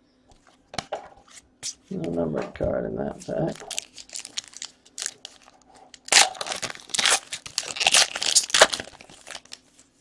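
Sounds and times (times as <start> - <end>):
foil wrapper tearing and crumpling: 3.6 - 9.6.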